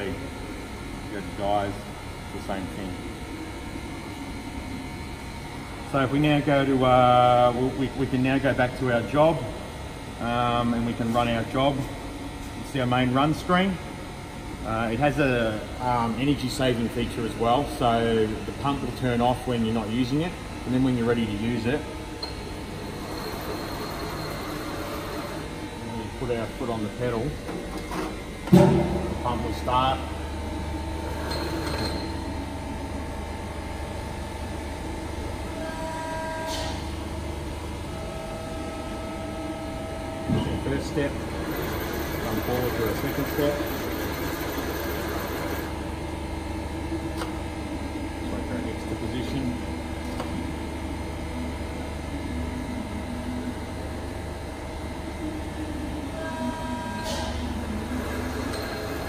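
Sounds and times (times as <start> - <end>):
hydraulic pump humming: 17.3 - 59.0
machine whine: 20.7 - 54.2, 54.8 - 59.0
hydraulic pump motor humming: 22.2 - 33.0, 56.3 - 59.0.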